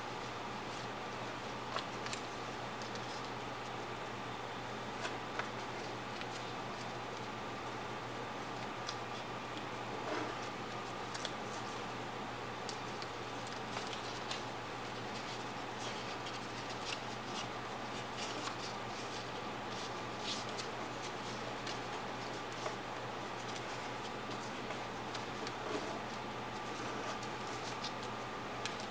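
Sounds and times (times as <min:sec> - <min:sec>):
paper being folded and creased: 0:01.6 - 0:03.8, 0:10.0 - 0:11.9, 0:12.7 - 0:28.9.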